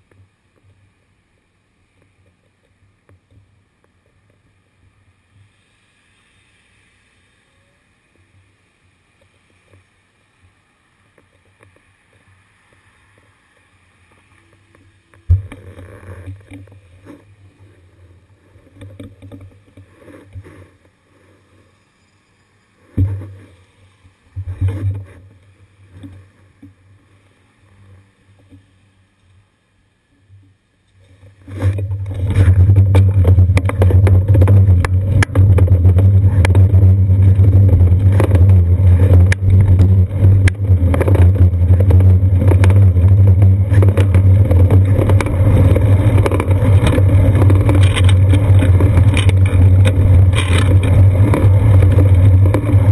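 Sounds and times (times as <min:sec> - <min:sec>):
bicycle road rumble: 0:00.0 - 0:52.9
wind noise: 0:31.4 - 0:52.9.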